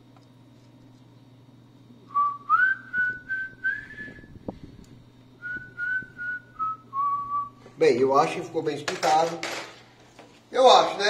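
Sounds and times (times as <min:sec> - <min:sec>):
person whistling a tune: 0:02.1 - 0:04.3, 0:05.4 - 0:07.5.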